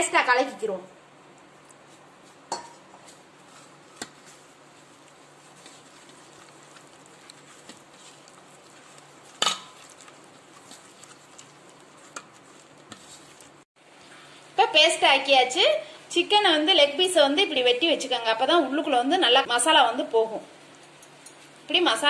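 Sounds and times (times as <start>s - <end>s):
hand mixing wet paste in bowl: 0.4s - 14.1s.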